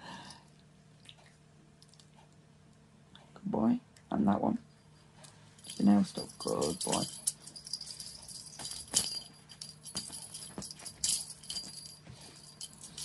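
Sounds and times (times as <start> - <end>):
small bell jingling: 4.8 - 13.0.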